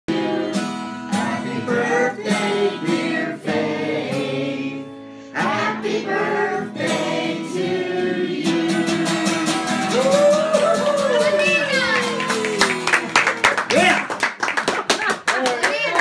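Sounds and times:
acoustic guitar strumming: 0.1 - 13.2
man singing: 5.4 - 10.0.

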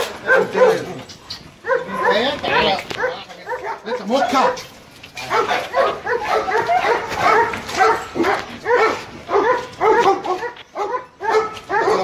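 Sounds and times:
dog barking: 0.0 - 1.0, 1.6 - 12.0.

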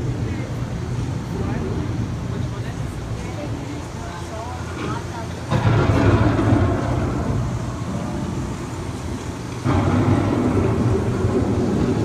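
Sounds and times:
wind: 0.0 - 12.0
thunder rumbling: 5.5 - 12.0.

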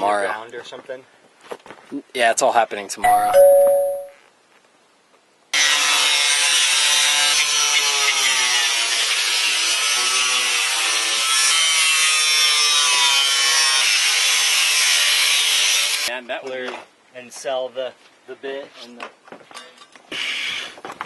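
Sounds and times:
angle grinder cutting metal: 5.6 - 16.1.

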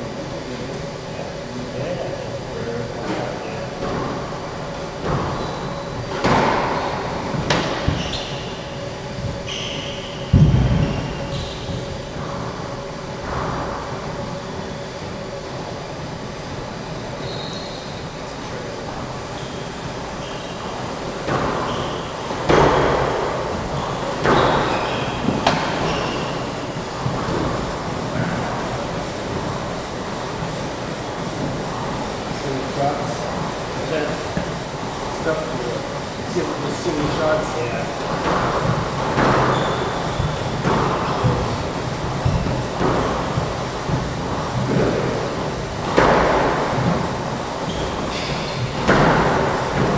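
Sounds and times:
steady background hum: 0.0 - 49.9
shoes squeaking on wooden floor: 5.0 - 12.0, 17.2 - 18.0, 19.4 - 27.6, 36.9 - 45.2, 47.6 - 49.9
squash ball hitting walls: 6.0 - 8.4, 10.3 - 12.3, 21.2 - 29.6, 38.0 - 49.9.

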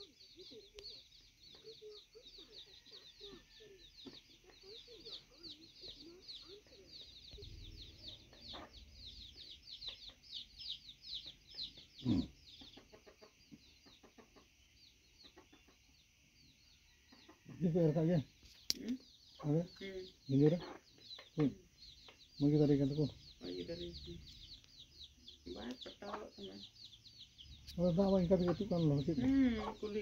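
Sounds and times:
hen clucking softly: 0.0 - 10.4, 11.1 - 16.1
chicks peeping: 0.0 - 30.0.

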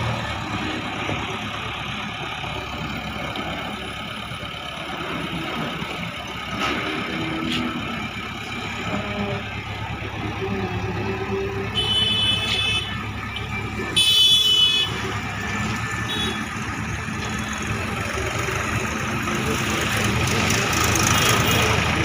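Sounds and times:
diesel engines idling: 0.0 - 22.0
vehicle horn: 11.6 - 15.1, 16.0 - 16.5.

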